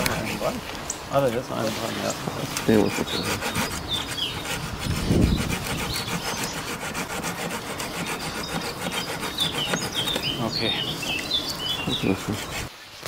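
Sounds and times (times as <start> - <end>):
hand saw rasping through wood: 2.4 - 12.7.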